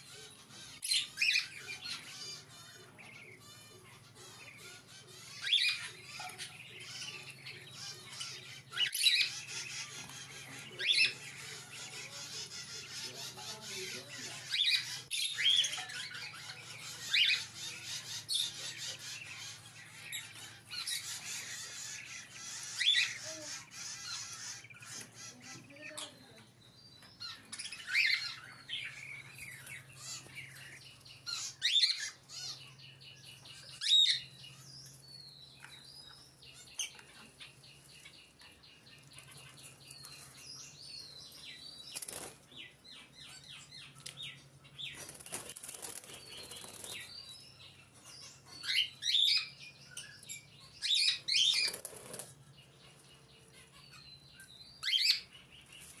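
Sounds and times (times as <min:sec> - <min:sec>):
birds chirping and calling: 0:00.0 - 0:56.0
fluttering wings: 0:41.9 - 0:42.5, 0:45.0 - 0:47.1, 0:51.5 - 0:52.4.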